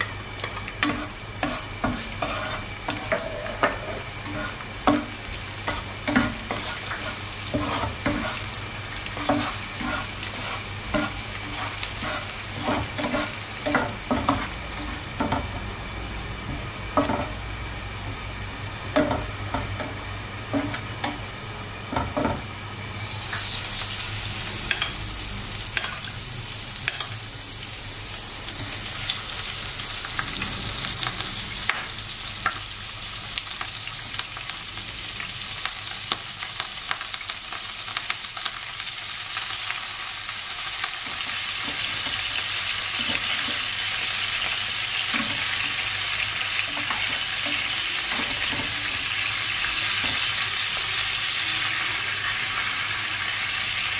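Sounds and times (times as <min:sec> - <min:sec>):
food sizzling in a frying pan: 0:00.0 - 0:53.9
spatula scraping a pan: 0:00.8 - 0:15.5.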